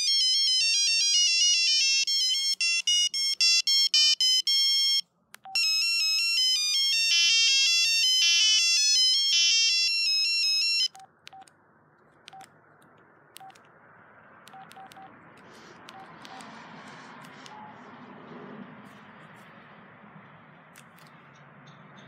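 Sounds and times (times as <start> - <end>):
electronic ringtone melody: 0.0 - 11.1
phone key-press beeps: 2.1 - 11.5, 14.5 - 15.1, 15.9 - 16.5.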